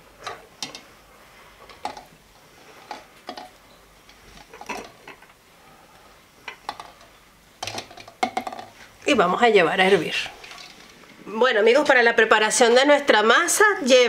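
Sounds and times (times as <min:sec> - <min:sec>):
eggs clicking against metal pot: 0:00.2 - 0:00.9, 0:02.9 - 0:05.4, 0:06.4 - 0:08.8.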